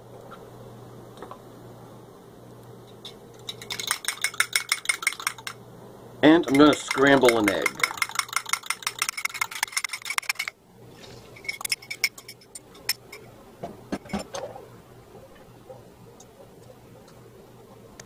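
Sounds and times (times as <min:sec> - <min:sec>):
fork beating egg in cup: 0:03.4 - 0:05.6, 0:06.4 - 0:10.5, 0:11.4 - 0:13.2
fork clinking in metal skillet: 0:06.4 - 0:10.5.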